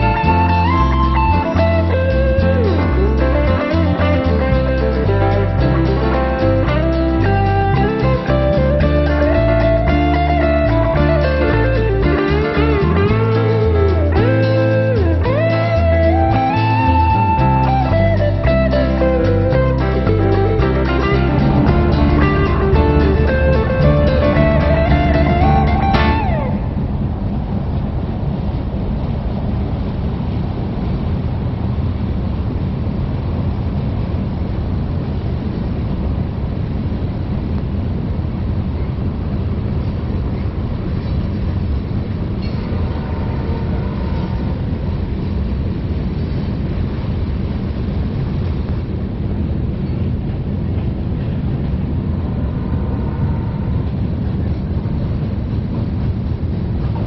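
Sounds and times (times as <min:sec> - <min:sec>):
train wheels on rail: 0:20.4 - 0:57.0.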